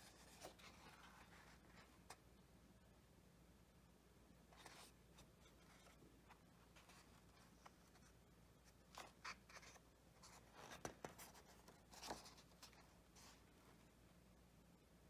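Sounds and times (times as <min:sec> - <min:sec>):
paper pages rustling: 0:00.0 - 0:02.2, 0:04.6 - 0:13.6.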